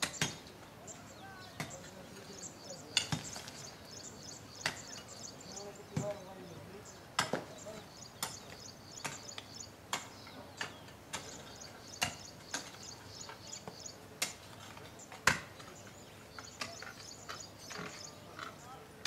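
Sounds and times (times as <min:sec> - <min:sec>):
faint bird chirping: 0:00.0 - 0:19.0
tool chopping knocks: 0:05.9 - 0:06.2, 0:07.2 - 0:07.6.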